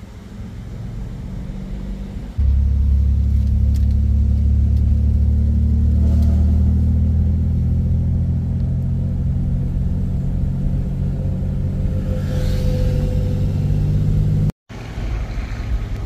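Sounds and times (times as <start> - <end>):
vehicle engine and tyre drone: 0.0 - 16.0.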